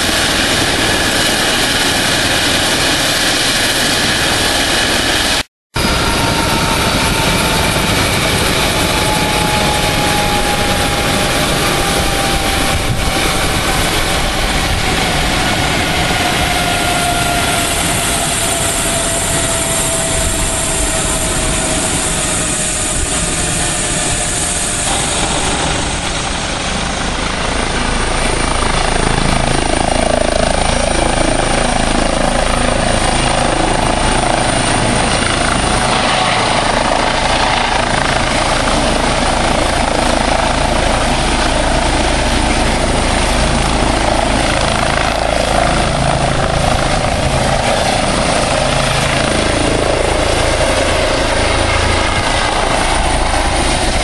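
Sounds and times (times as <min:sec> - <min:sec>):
helicopter rotors turning: 0:00.0 - 0:54.0.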